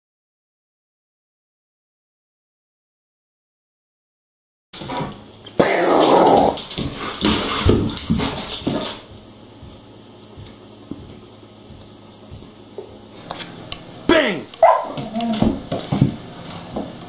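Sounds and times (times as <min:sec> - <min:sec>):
dog whining and grumbling: 0:05.6 - 0:06.7, 0:14.7 - 0:15.5.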